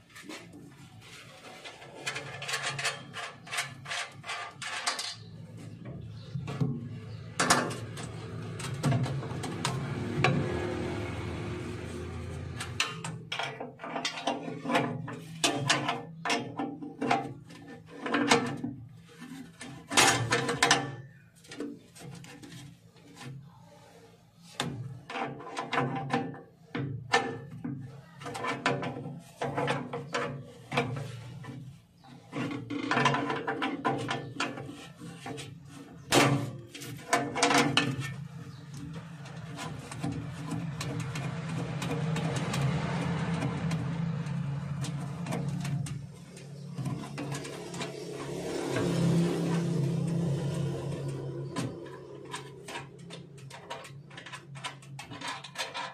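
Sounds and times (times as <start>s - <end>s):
tools clicking and knocking: 1.6s - 5.4s.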